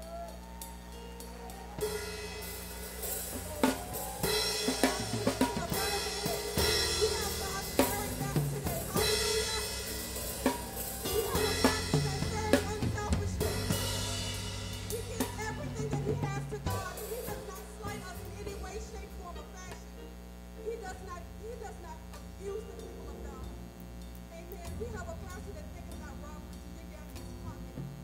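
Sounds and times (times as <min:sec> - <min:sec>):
church band music: 0:00.0 - 0:19.8, 0:20.6 - 0:27.8
held bass notes: 0:00.0 - 0:28.0
drum kit hits: 0:01.5 - 0:18.7.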